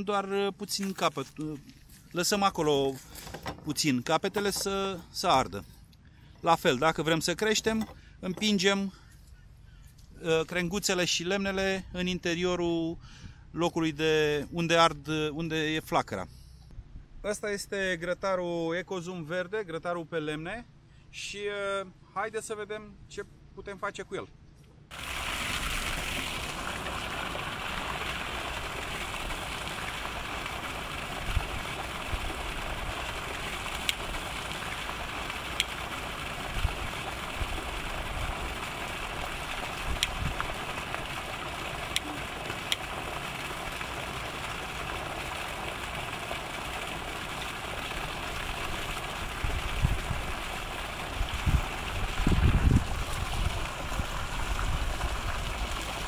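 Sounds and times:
steady outdoor hiss: 0.0 - 56.0
wind buffeting microphone: 39.8 - 40.6, 49.3 - 50.5, 51.1 - 55.8.

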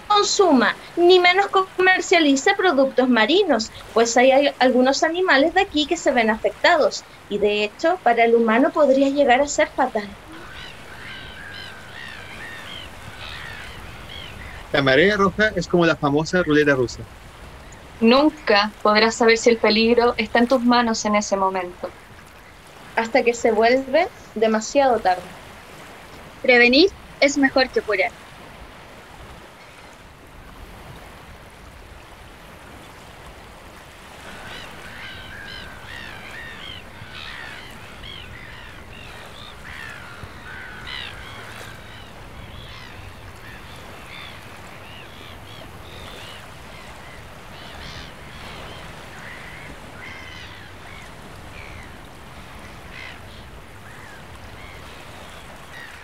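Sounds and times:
water rushing: 0.0 - 56.0
short bird calls: 10.2 - 14.8, 34.2 - 56.0.

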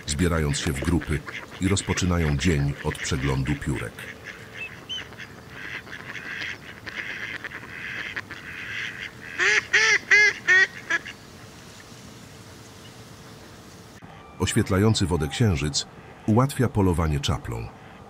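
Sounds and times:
faint waterfowl chatter: 0.0 - 11.2
goose honking: 0.5 - 11.2.

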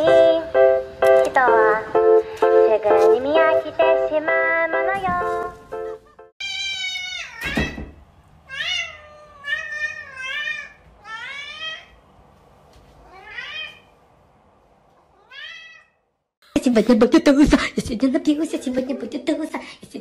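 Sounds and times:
cat meowing: 6.4 - 7.8, 8.5 - 12.0, 13.0 - 13.9, 15.1 - 16.0.

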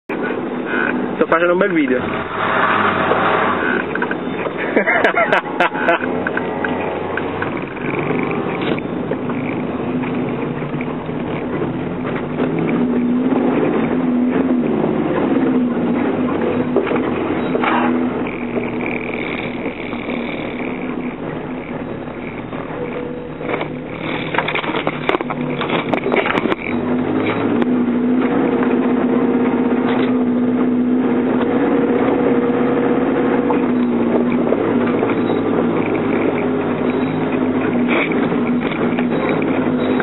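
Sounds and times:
engine running under load: 0.1 - 40.0
knocks and rattles: 16.0 - 27.7.

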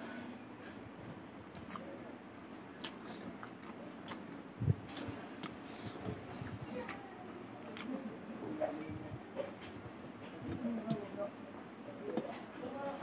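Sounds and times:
chewing with mouth clicks: 1.5 - 7.0.

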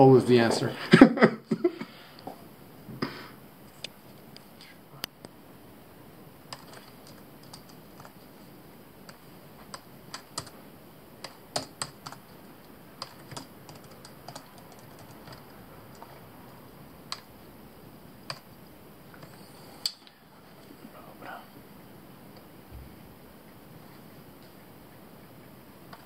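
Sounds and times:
typing on a laptop keyboard: 6.5 - 8.2, 9.0 - 10.6, 11.2 - 12.4, 13.0 - 16.2, 17.1 - 17.3, 18.2 - 18.5.

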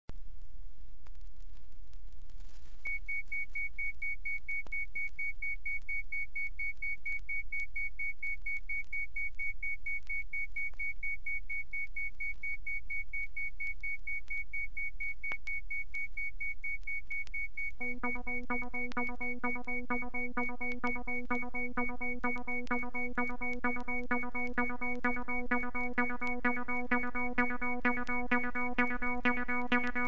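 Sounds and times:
rapid electronic beeping: 17.8 - 30.0.

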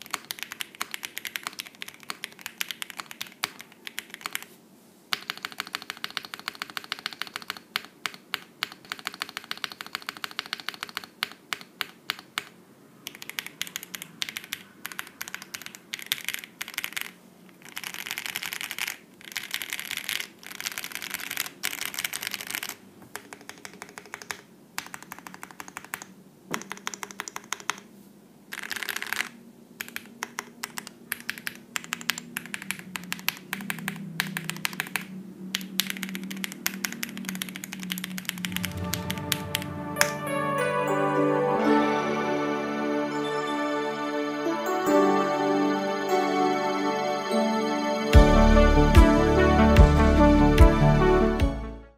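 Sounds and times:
mechanical keyboard typing: 0.0 - 4.5, 5.1 - 27.9, 28.5 - 39.4.

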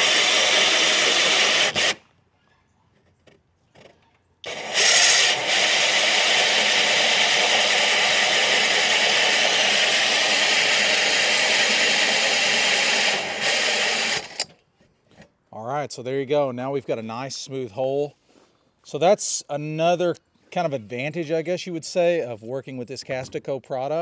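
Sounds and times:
hole saw grinding through stone: 0.0 - 2.0, 4.4 - 14.5.

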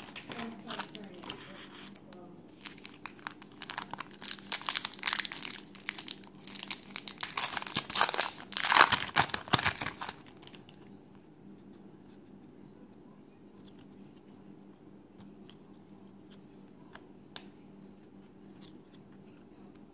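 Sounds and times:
foil wrapper tearing and crinkling: 2.6 - 10.6.

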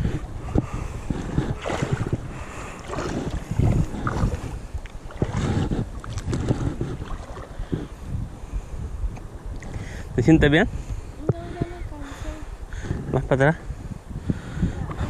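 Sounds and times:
wind buffeting microphone: 0.0 - 15.0
river water sloshing around legs: 1.1 - 7.7.

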